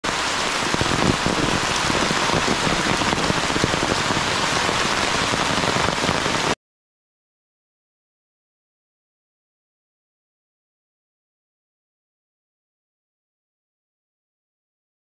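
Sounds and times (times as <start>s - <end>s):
heavy rain on leaves and earth: 0.0s - 6.6s.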